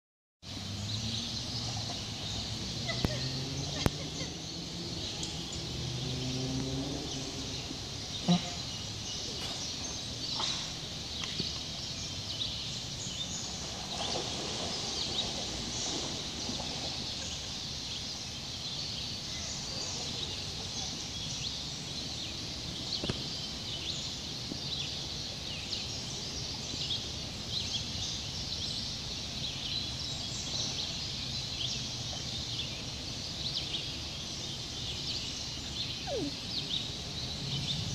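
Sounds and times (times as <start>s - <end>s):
birds and insects chirping: 0.4s - 37.9s
river running over rocks: 0.5s - 28.3s.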